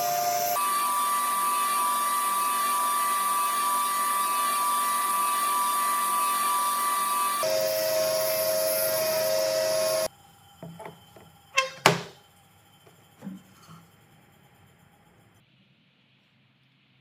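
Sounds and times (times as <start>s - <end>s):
table saw whining: 0.0s - 10.1s, 11.6s - 12.2s.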